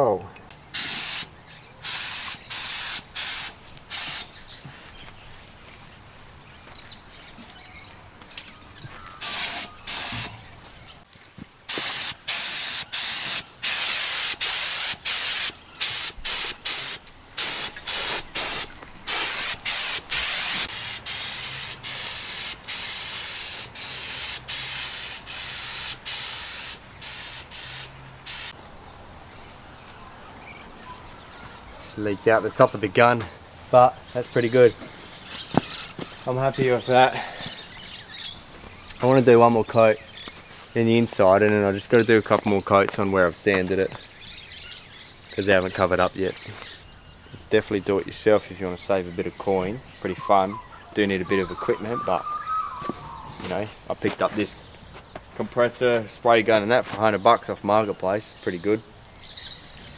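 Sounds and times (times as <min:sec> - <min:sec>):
spray gun hissing in bursts: 0:00.8 - 0:04.3, 0:09.2 - 0:10.4, 0:11.7 - 0:28.6.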